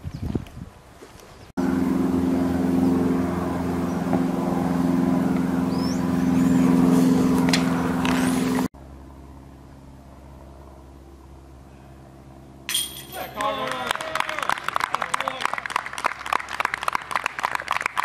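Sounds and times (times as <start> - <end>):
engine idling: 1.6 - 13.2.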